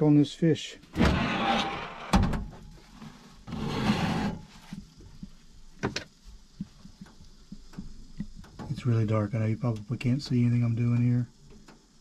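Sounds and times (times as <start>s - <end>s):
oven door scraping slide: 1.0s - 2.4s, 3.5s - 4.5s.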